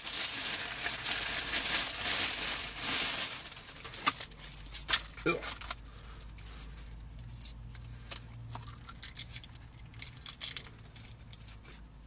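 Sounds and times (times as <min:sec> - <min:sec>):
sauce packet crinkling and tearing: 0:00.0 - 0:05.8, 0:08.4 - 0:11.8.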